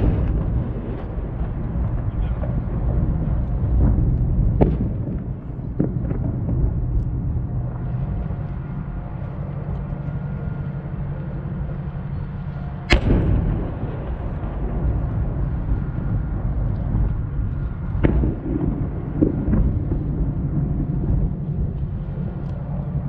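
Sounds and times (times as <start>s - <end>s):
fireworks cracks: 0.0s - 7.1s, 12.9s - 20.2s
fireworks booming: 0.0s - 8.4s, 12.9s - 22.4s
steady low rumble: 0.0s - 23.0s.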